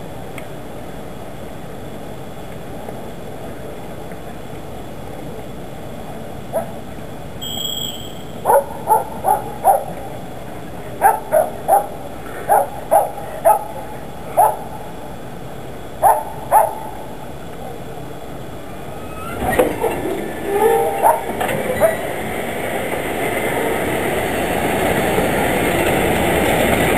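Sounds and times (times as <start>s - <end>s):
steady background hum: 0.0s - 26.9s
dog barking: 6.5s - 6.8s, 8.4s - 10.0s, 11.0s - 14.7s, 16.0s - 17.0s, 20.6s - 22.1s.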